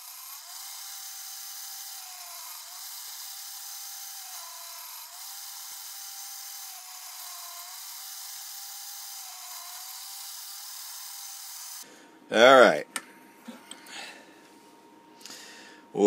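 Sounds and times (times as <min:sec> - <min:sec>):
grinding wheel hissing: 0:00.0 - 0:11.9.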